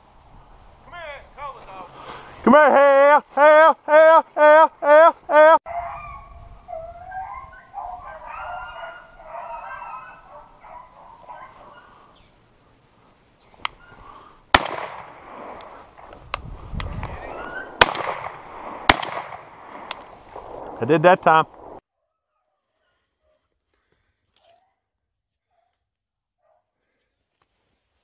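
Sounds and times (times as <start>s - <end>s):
brush rustling: 1.4s - 2.5s, 9.0s - 21.8s
hunting dogs baying: 3.5s - 12.2s, 13.7s - 14.3s.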